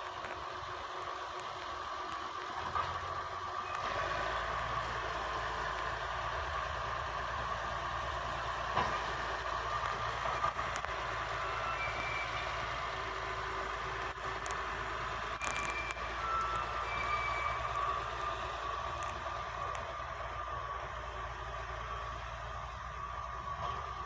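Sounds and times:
excavator engine running: 0.0s - 24.0s
brief high tones: 15.4s - 18.8s.

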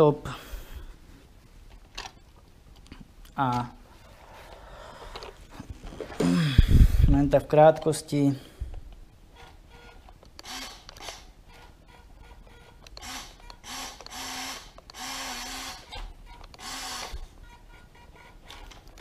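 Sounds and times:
small electric motor whirring: 10.4s - 11.2s, 13.0s - 16.0s, 16.6s - 17.2s.

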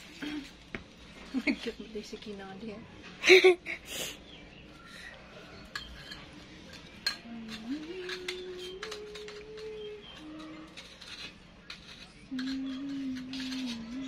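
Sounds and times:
metal tubes clinking: 5.6s - 14.0s.

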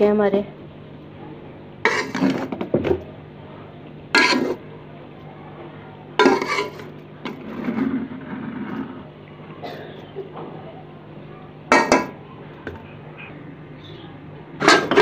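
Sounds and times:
spoon scraping metal pot: 1.9s - 2.5s, 4.2s - 4.6s, 6.2s - 8.9s.

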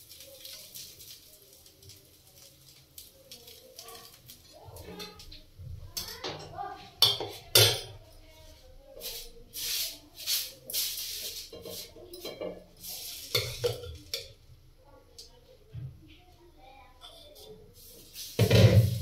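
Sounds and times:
spatula clinking on steel plate: 6.0s - 7.9s, 11.5s - 12.6s
pan wiping swishes: 9.0s - 12.0s, 17.8s - 19.0s
ladle clattering in pot: 13.3s - 14.4s.

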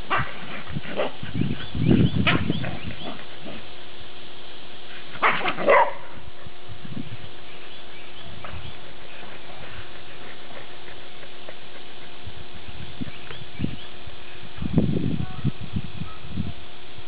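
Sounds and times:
dogs barking: 0.0s - 3.7s, 5.2s - 6.4s, 8.3s - 12.2s.

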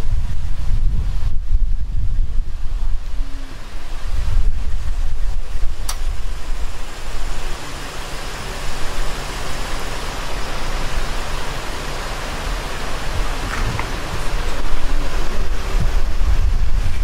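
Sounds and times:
volcano erupting with deep rumble: 0.0s - 17.0s
wind buffeting microphone: 0.0s - 17.0s.

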